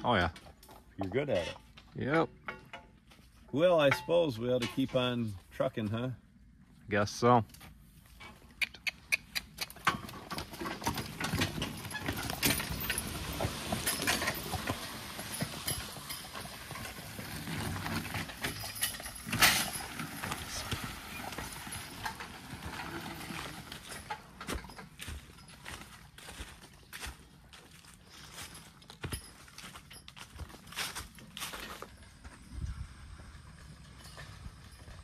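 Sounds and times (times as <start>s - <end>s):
horse hooves clopping: 7.5s - 35.0s.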